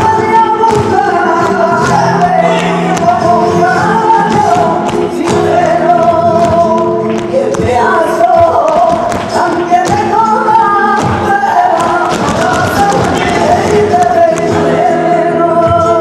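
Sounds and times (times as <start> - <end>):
dancers' footwork taps: 0.0 - 14.9
flamenco singing: 0.0 - 16.0.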